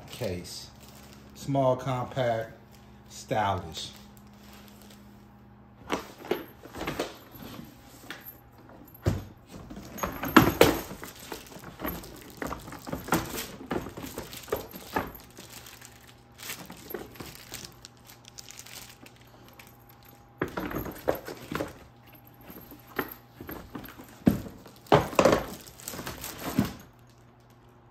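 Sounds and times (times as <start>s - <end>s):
suitcase knocks and clicks: 8.8s - 15.6s, 20.4s - 26.8s
rustling: 9.5s - 26.9s.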